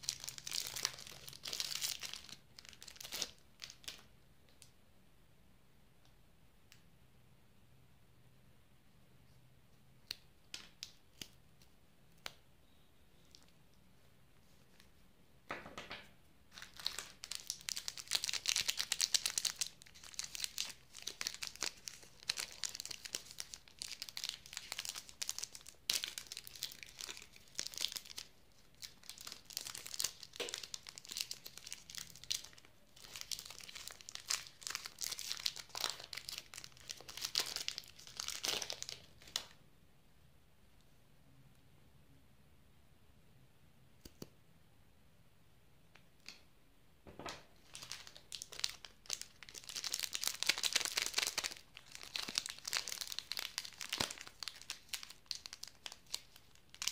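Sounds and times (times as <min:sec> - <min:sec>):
foil wrapper crinkling and tearing: 0:00.0 - 0:04.0, 0:16.5 - 0:39.5, 0:47.6 - 0:56.9.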